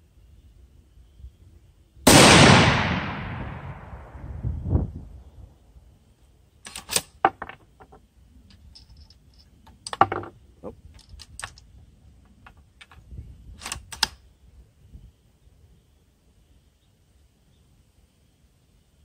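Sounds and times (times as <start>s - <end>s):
rifle bolt clicking and clacking: 6.6s - 7.2s, 11.0s - 11.6s, 13.6s - 14.2s.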